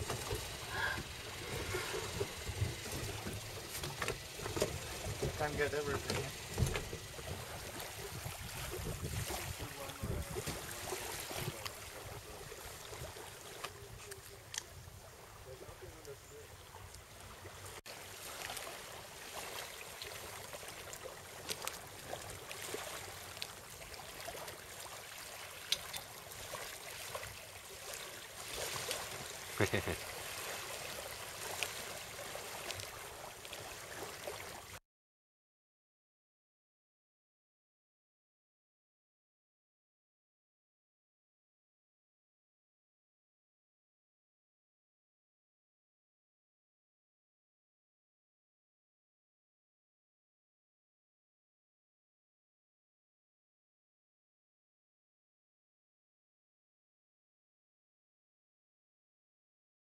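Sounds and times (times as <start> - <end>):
wind buffeting microphone: 0.0 - 12.4
small water splashes: 0.0 - 15.4, 16.6 - 34.8
small waves lapping: 0.0 - 34.8.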